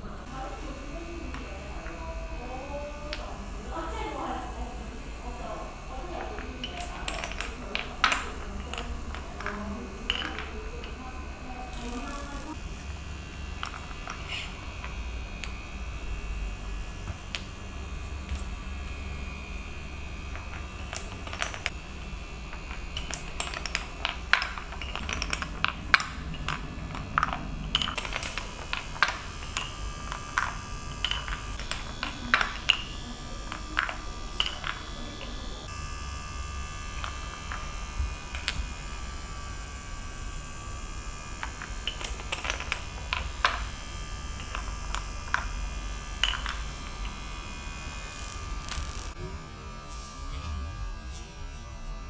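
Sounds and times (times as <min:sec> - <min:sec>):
marbles clacking on wooden blocks: 0:03.1 - 0:03.4, 0:06.0 - 0:12.5, 0:13.5 - 0:15.6, 0:20.3 - 0:21.8, 0:22.4 - 0:35.4, 0:37.0 - 0:38.7, 0:41.3 - 0:47.2.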